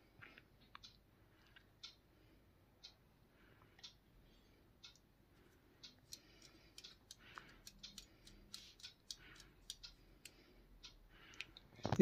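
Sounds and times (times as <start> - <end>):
plastic pen clicking: 6.0 - 10.4.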